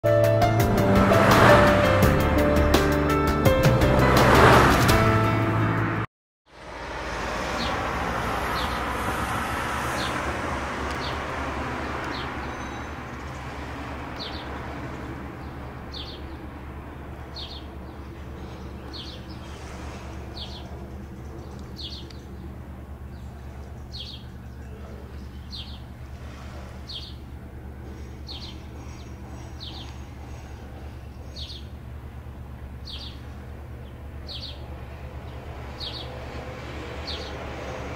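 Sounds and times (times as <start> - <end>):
intro music: 0.1 - 6.1
turboprop aircraft droning: 0.2 - 37.9
bird chirping: 12.1 - 13.4, 20.2 - 26.0, 27.9 - 31.8, 32.8 - 34.7.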